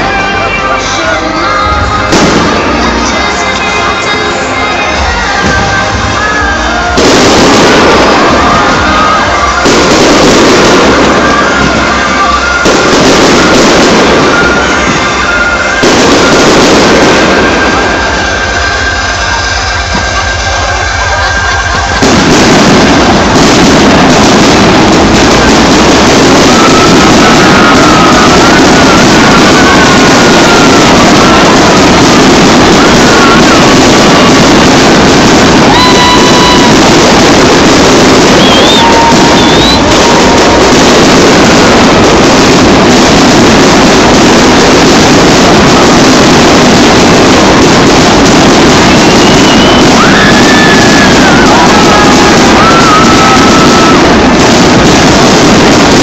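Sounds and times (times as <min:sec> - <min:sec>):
fireworks barrage: 0:00.0 - 0:56.0
wavering high whistle: 0:35.6 - 0:36.8, 0:38.3 - 0:40.5, 0:49.0 - 0:53.9.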